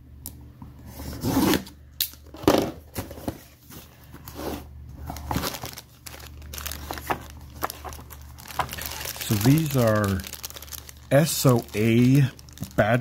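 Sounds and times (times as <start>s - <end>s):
plastic bags crinkling: 5.0s - 13.0s.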